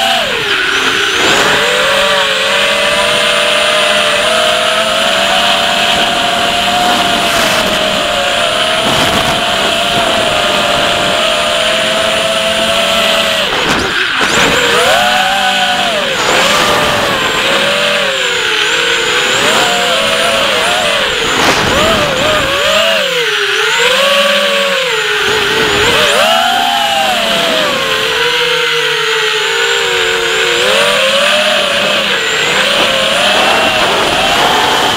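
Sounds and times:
quadcopter motors whining: 0.0 - 34.9.

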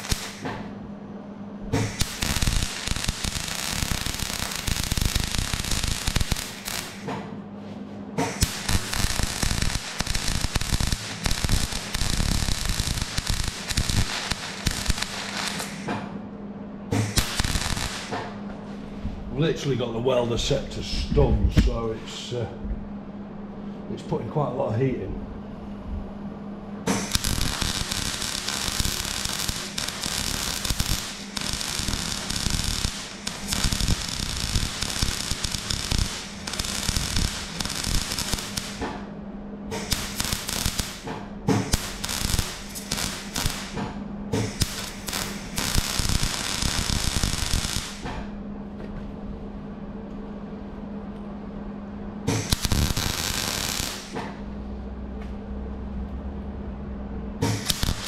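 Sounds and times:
welder crackling and spitting: 0.0 - 0.5, 1.8 - 7.1, 8.2 - 15.9, 17.0 - 18.2, 26.9 - 38.9, 39.7 - 43.8, 44.4 - 48.1, 52.3 - 54.2, 57.4 - 58.0
steady low hum: 0.0 - 58.0.

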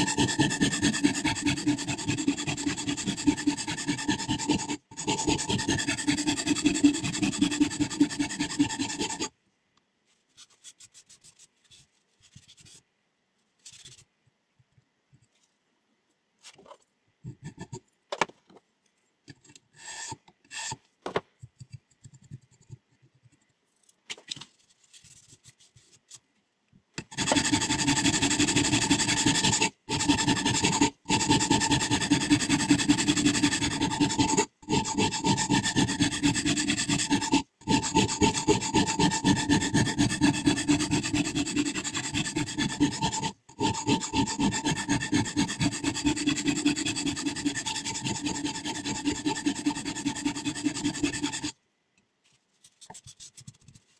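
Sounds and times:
sharpening stone scraping steel blade: 0.0 - 9.3, 27.1 - 51.6.

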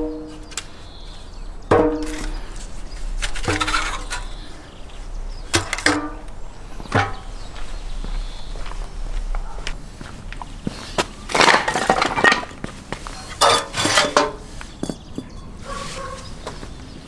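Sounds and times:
ceramic and wood scraping: 0.0 - 4.6, 11.2 - 16.4.

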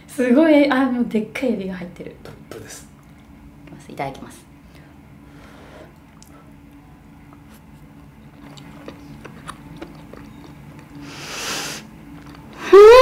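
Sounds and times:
woman blowing on food: 11.0 - 11.9
woman humming mmm: 12.6 - 13.0.

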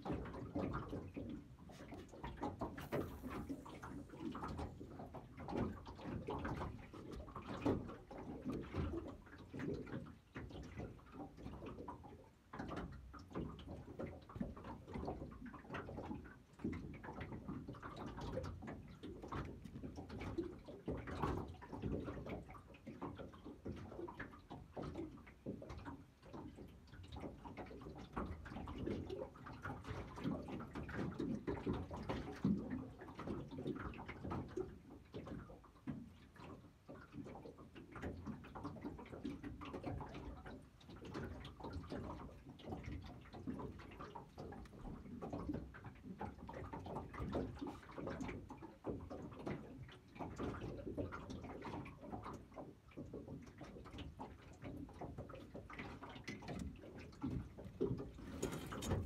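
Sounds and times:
waves lapping against boat hull: 0.0 - 59.0.

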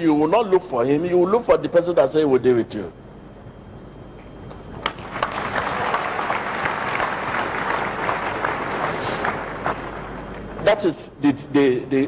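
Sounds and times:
crowd applauding: 4.8 - 10.1.

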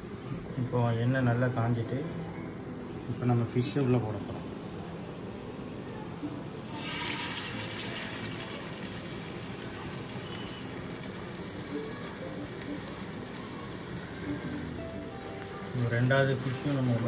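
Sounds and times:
fish sizzling in hot oil: 6.5 - 17.0.

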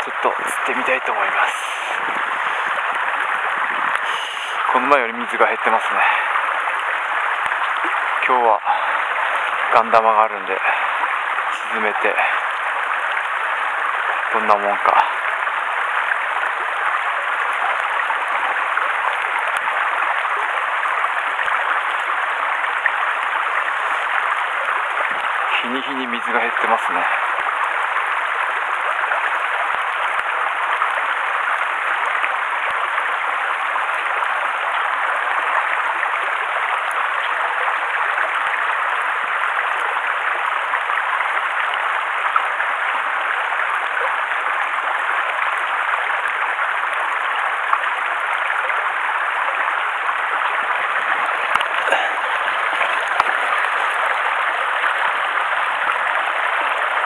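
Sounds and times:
stream running over rocks: 0.0 - 57.0.

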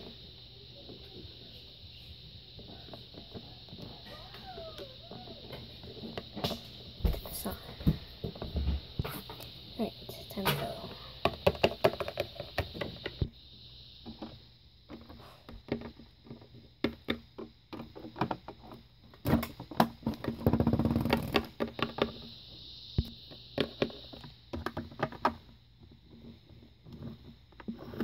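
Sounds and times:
plastic toys rattling and scraping: 10.1 - 13.2, 14.1 - 22.3
plastic toys clicking on hard floor: 10.7 - 13.2.

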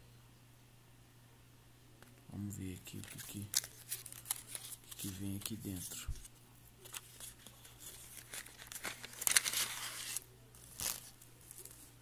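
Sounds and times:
plastic bag crinkling: 6.9 - 11.9.

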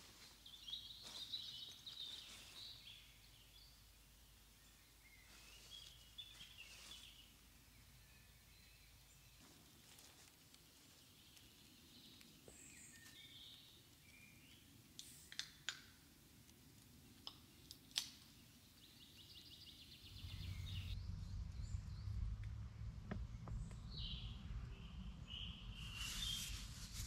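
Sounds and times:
faint birdsong: 0.0 - 27.0
low rumble: 20.0 - 26.0.

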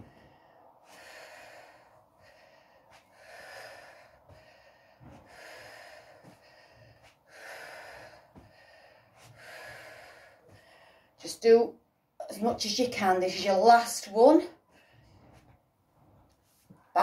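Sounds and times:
woman breathing hard: 0.0 - 11.2.

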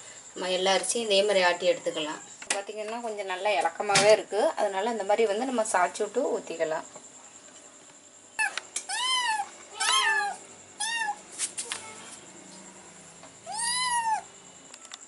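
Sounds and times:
cat meowing: 8.4 - 11.2, 13.5 - 14.3.

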